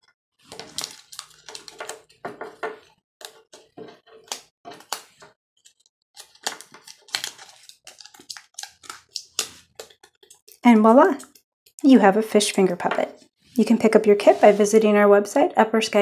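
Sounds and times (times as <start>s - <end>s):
paper crinkling: 0.4s - 10.6s.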